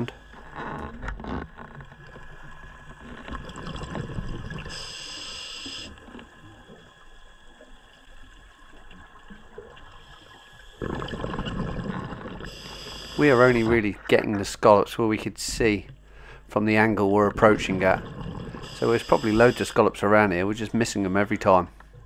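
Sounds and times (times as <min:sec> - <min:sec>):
underwater exhaled bubbles: 0:01.8 - 0:14.5, 0:16.7 - 0:19.8
regulator hiss: 0:04.7 - 0:06.0, 0:12.4 - 0:13.9, 0:15.5 - 0:21.1.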